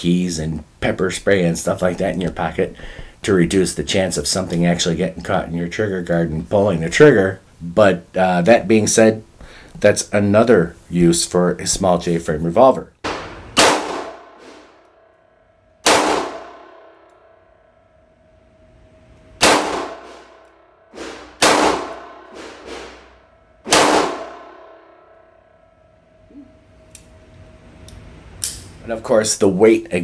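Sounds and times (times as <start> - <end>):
revolver gunshots ringing: 13.0 - 14.7, 15.8 - 17.0, 19.4 - 20.4, 21.0 - 25.1.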